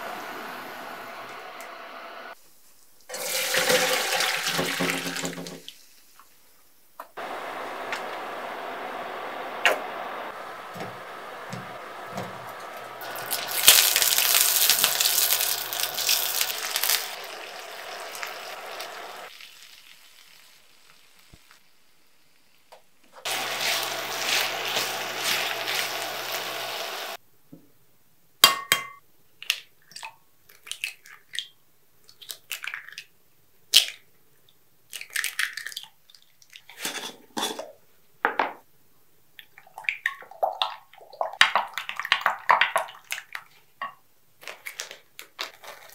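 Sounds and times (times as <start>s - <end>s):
dishes and utensils clinking: 36.8s - 37.7s.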